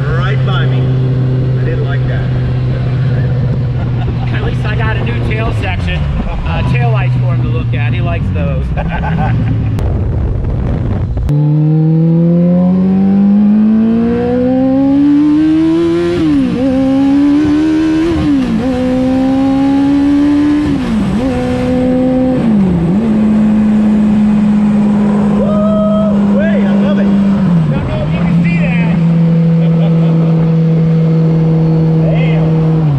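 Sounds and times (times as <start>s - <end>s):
engine revving through gears: 11.3s - 25.5s, 26.1s - 32.9s.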